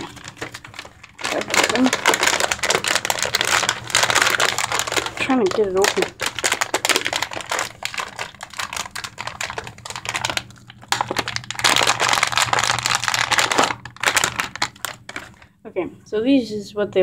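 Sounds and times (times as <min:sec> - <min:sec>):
plastic bag crinkling: 0:00.0 - 0:15.5.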